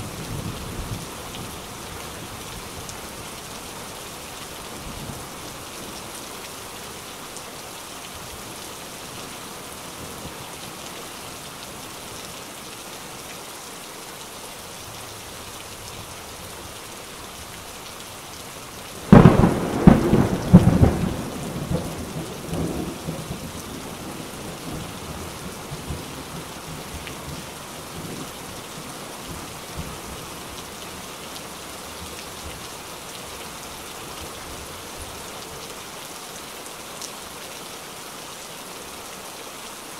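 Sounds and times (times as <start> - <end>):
steady rain falling: 0.0 - 39.9
thunderclap rumbling: 19.1 - 24.8.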